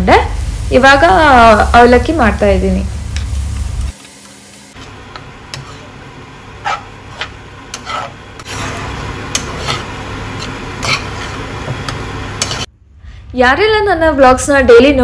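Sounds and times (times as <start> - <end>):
spatula scraping frying pan: 4.8 - 6.0, 6.6 - 12.7.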